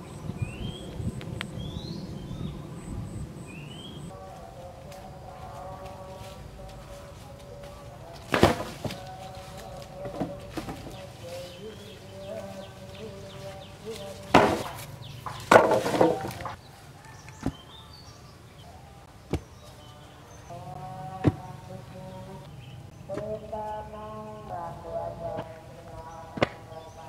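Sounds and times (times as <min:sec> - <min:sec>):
wooden poles clattering: 0:04.4 - 0:16.6
pole thudding into hole: 0:14.3 - 0:16.6.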